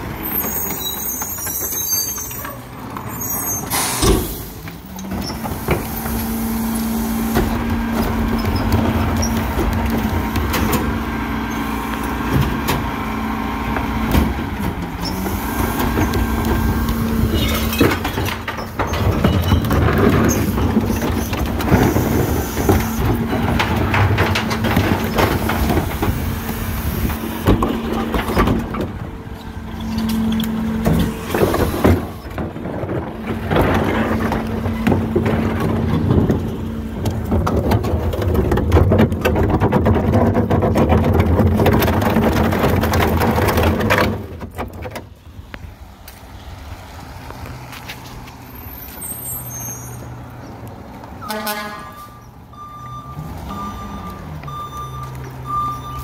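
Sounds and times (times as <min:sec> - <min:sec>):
garbage truck engine running: 0:00.0 - 0:56.0
clanks and rattles: 0:07.3 - 0:46.3
repeated beeping: 0:51.3 - 0:56.0.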